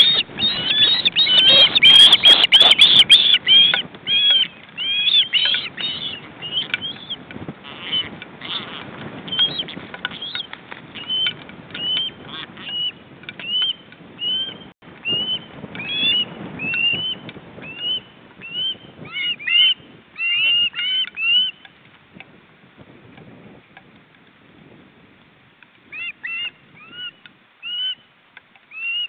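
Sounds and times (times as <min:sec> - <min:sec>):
wing flaps: 0:00.0 - 0:13.8
osprey calling: 0:00.0 - 0:21.8, 0:25.9 - 0:29.0.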